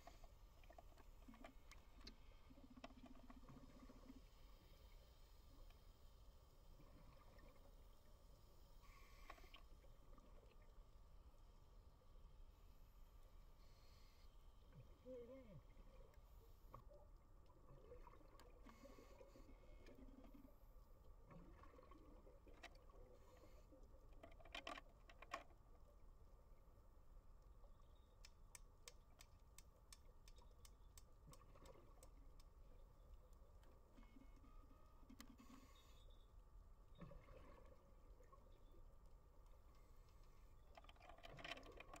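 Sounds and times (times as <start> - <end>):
cluster of clicks: 28.2 - 32.6.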